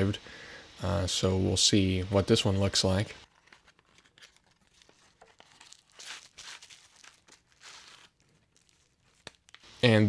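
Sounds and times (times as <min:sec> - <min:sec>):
bubble wrap and cardboard rustling: 0:02.2 - 0:10.0.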